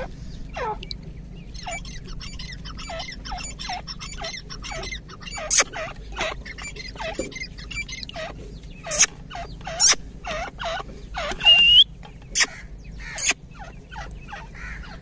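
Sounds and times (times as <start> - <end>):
bird chirps sweeping downward: 11.2 - 14.4
rising bird whistle: 11.3 - 12.5.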